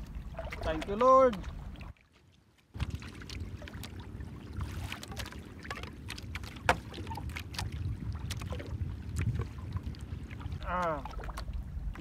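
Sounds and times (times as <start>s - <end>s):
water lapping against boat: 0.0s - 12.0s
steady low rumble: 2.8s - 12.0s.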